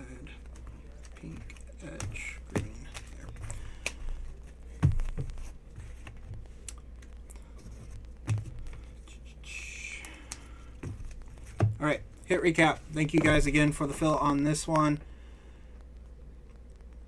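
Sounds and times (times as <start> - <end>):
plastic sleeves rustling: 0.2 - 9.1.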